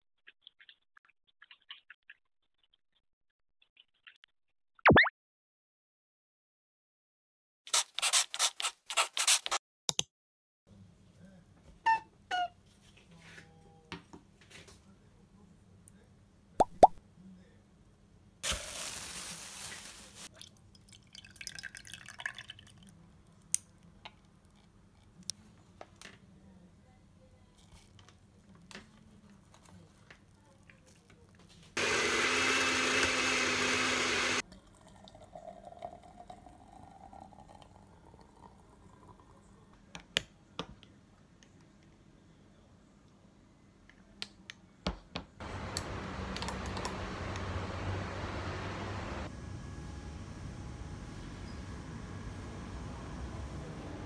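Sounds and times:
countertop blender running: 0:31.8 - 0:34.4, 0:45.4 - 0:49.3.

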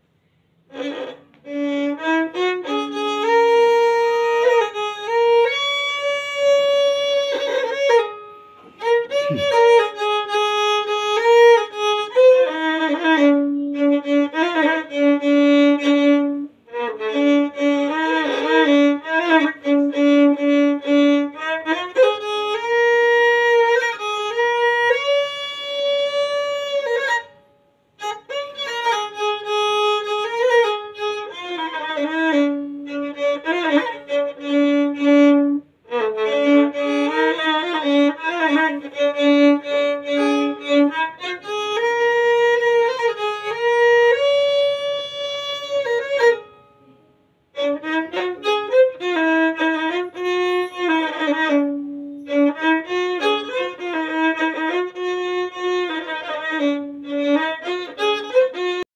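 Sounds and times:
violin melody: 0:00.0 - 0:58.9.

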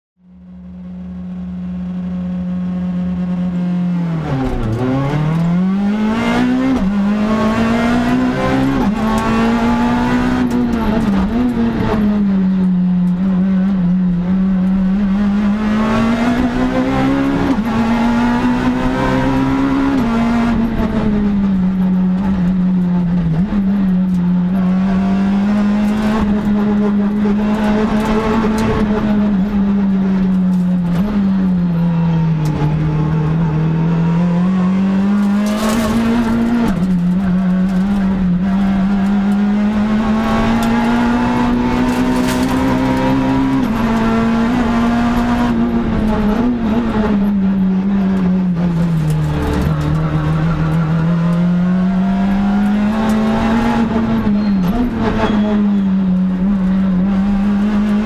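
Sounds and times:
rally car engine revving: 0:00.3 - 0:58.0
quick gear changes: 0:34.4 - 0:58.0.

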